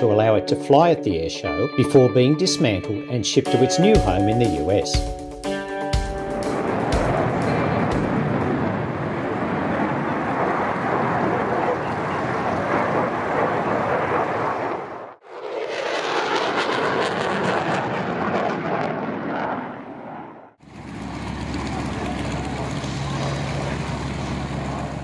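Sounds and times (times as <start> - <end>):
aircraft engine drone: 4.9 - 25.0.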